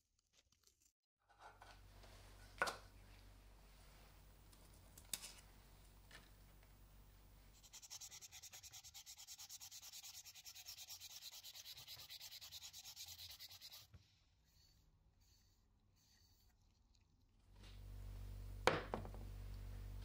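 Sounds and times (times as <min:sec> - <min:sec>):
low hum: 0:01.7 - 0:07.8, 0:17.6 - 0:20.0
sandpaper scratching on plastic: 0:07.6 - 0:13.9.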